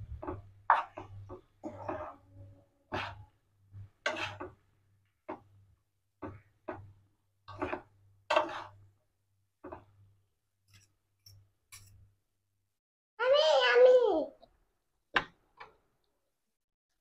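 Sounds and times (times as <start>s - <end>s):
metal fork scraping a frying pan: 0.7s - 2.3s, 2.9s - 3.3s, 4.0s - 4.6s, 7.5s - 8.8s.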